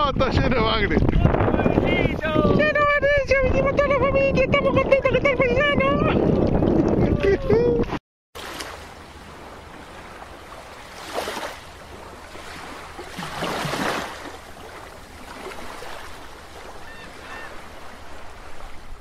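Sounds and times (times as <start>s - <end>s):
water rushing: 8.4s - 19.0s
water whooshing swells: 8.4s - 19.0s.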